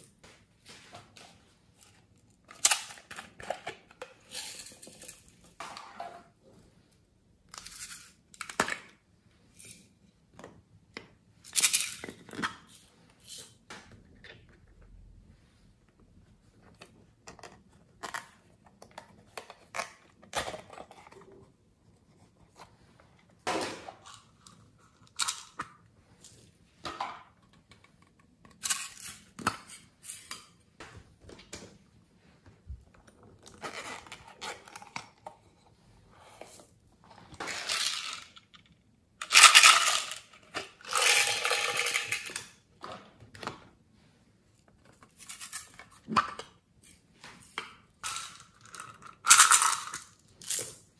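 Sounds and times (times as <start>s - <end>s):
plastic toy cases clicking and rattling: 2.4s - 5.6s, 37.4s - 43.0s, 47.9s - 50.9s.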